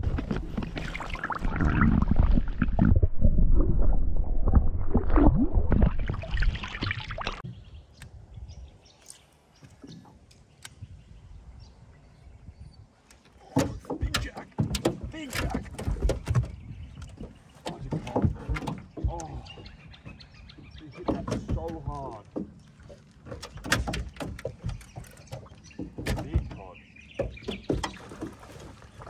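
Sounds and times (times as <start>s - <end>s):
water sloshing beside boat: 0.0s - 2.4s, 12.5s - 29.0s
wind buffeting microphone: 10.6s - 13.0s, 13.7s - 22.2s.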